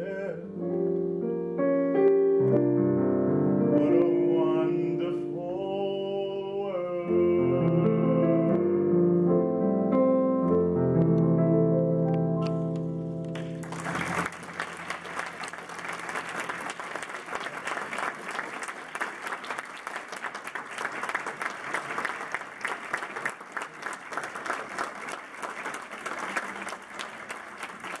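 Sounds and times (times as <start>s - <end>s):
audience applauding: 13.4s - 28.0s.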